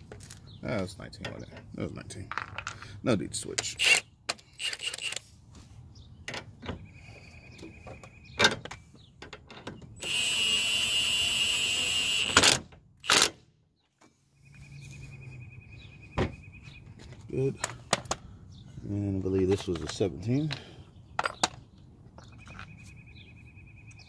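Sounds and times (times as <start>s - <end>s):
impact wrench running: 10.0s - 13.2s.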